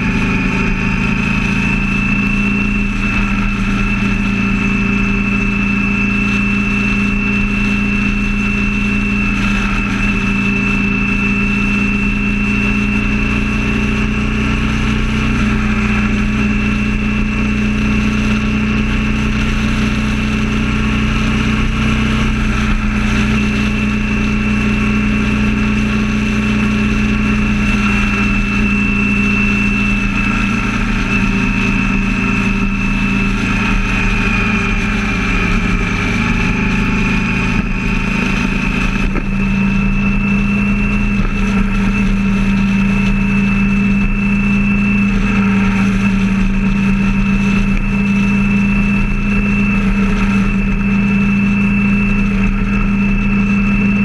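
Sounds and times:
engine drone: 0.0s - 54.0s
road and wind noise: 0.0s - 54.0s
high-pitched whistle: 42.7s - 46.2s, 46.9s - 54.0s.

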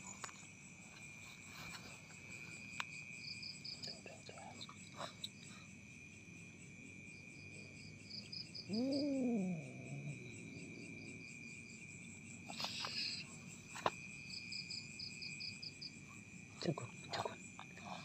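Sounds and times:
crickets chirping: 0.0s - 18.0s
low cat yowl: 8.6s - 10.9s.

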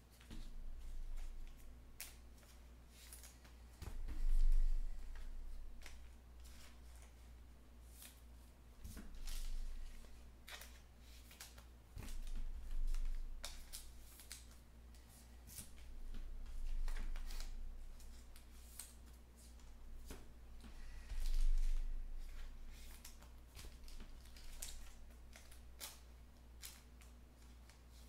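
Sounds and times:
low steady hum: 0.0s - 28.0s
cards swishing and clicking: 8.8s - 28.0s.

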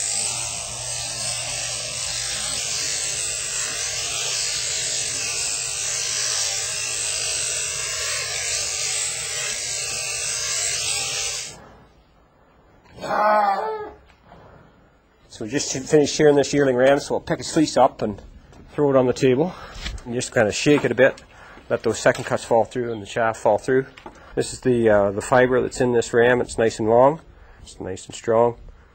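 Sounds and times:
electric shears running: 0.0s - 11.6s.

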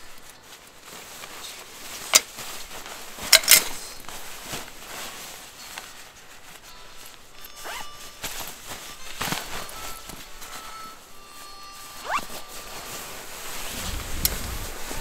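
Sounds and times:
soft handling noise: 0.0s - 15.0s
zipper zipping: 7.6s - 7.9s, 12.0s - 12.5s, 13.6s - 15.0s.

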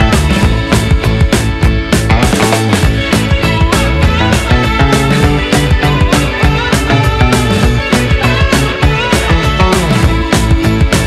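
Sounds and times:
rock music: 0.0s - 11.0s
steady drum beat: 0.0s - 11.0s.

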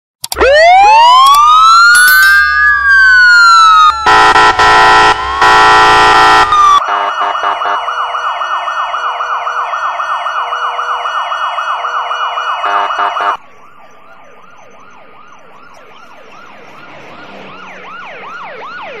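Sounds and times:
fast electronic siren yelp: 0.3s - 19.0s
police siren sweeping: 0.3s - 19.0s
horn blasts: 4.0s - 7.8s, 12.6s - 13.4s.

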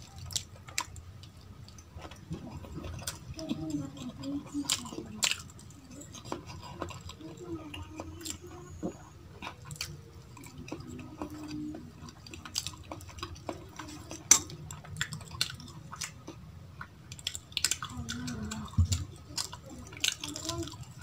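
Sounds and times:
chewing: 0.0s - 21.0s
fingers mixing food on a metal plate: 0.0s - 21.0s.

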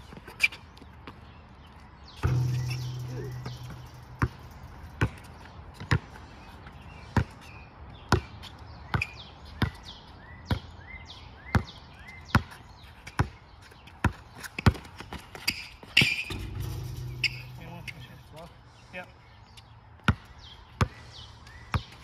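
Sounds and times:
basketball bouncing: 2.2s - 6.1s, 14.0s - 18.2s.

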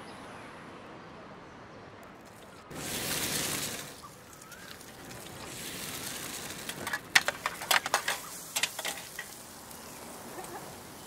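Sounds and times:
faint frying sizzle: 2.7s - 11.0s.

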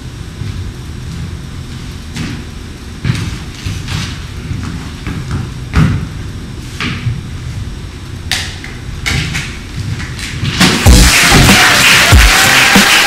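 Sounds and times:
people applauding: 10.8s - 13.0s.

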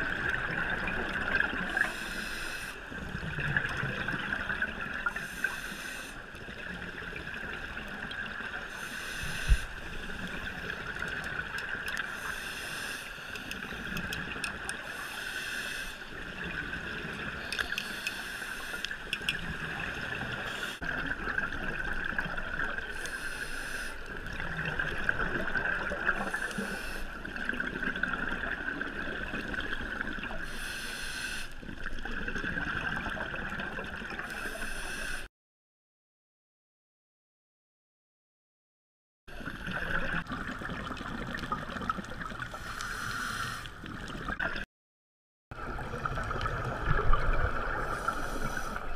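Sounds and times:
water hiss: 1.7s - 2.8s, 5.0s - 6.2s, 8.7s - 10.6s, 12.1s - 14.1s, 14.8s - 16.1s, 17.5s - 19.1s, 22.9s - 24.0s, 26.1s - 27.2s, 30.4s - 31.6s, 34.3s - 35.3s, 42.5s - 43.8s, 47.6s - 48.9s
regulator exhaust bubbles underwater: 45.5s - 48.9s.

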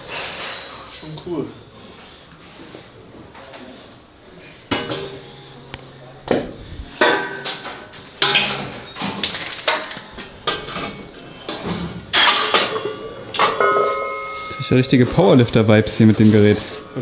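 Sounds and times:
weight plates clanking: 6.9s - 15.4s.

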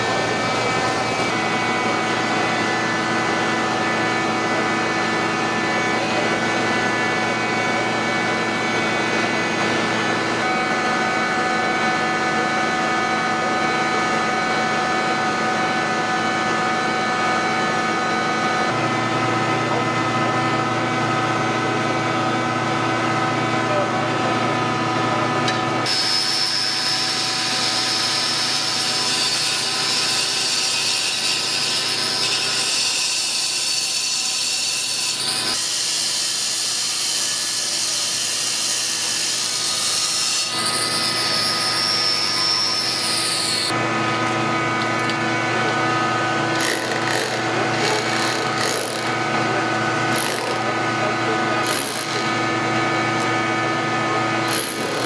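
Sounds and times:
angle grinder cutting masonry: 0.0s - 19.9s, 23.0s - 55.0s
rotary hammer chipping wall: 50.1s - 50.6s, 51.6s - 52.3s, 54.5s - 55.0s.

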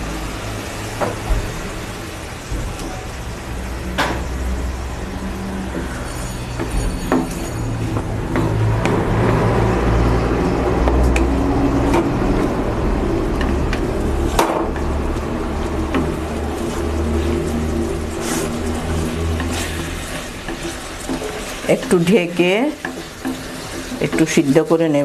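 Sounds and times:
spice paste sizzling: 0.0s - 25.0s
wooden spatula scraping metal pan: 5.1s - 25.0s
spatula knocking pan: 13.4s - 24.9s.

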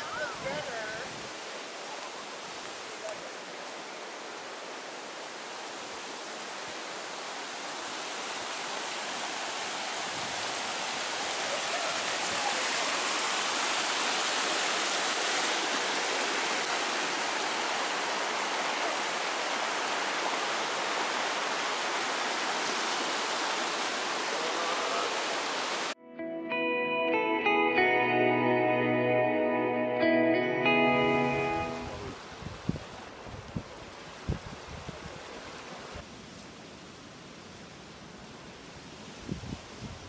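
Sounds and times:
stream rushing over rocks: 0.0s - 26.0s, 30.6s - 39.4s.

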